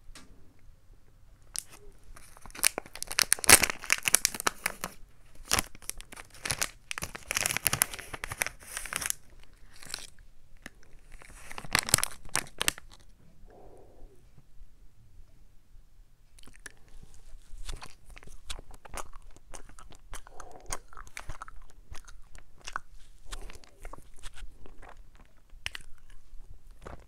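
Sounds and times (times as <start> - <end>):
plastic wrapper crinkling: 1.5 - 13.1, 17.4 - 20.0.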